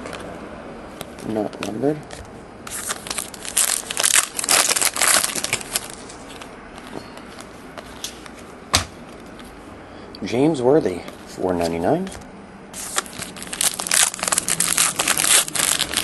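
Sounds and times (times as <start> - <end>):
wrapper crinkling and tearing: 2.7 - 6.4, 12.8 - 16.0.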